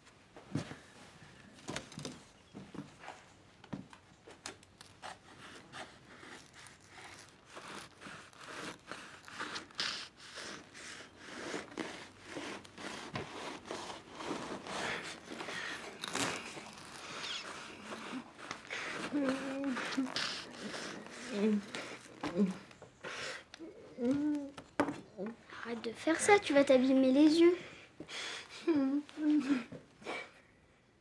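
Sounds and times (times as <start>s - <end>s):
sniffles: 5.4s - 12.1s, 14.6s - 24.0s.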